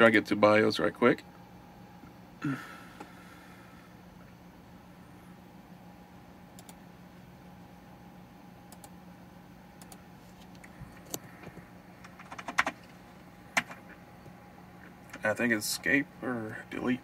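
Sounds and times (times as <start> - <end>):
low computer hum: 0.0 - 17.0
keyboard keys clicking: 12.0 - 12.8.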